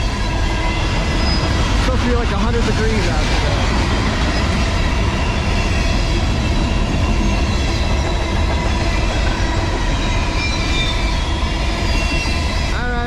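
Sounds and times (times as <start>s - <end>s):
steel wheels rumbling on track: 0.0s - 13.0s
high-pitched wheel squeals: 4.3s - 12.6s.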